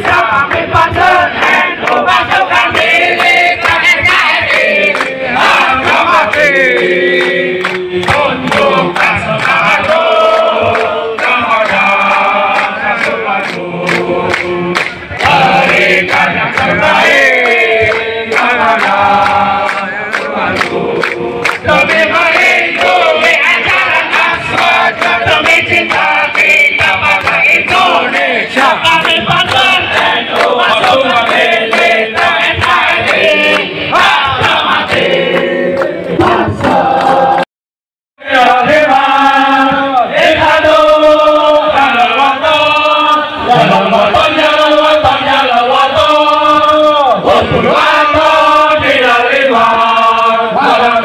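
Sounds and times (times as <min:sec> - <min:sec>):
chorus singing: 0:00.0 - 0:37.5, 0:38.2 - 0:51.0.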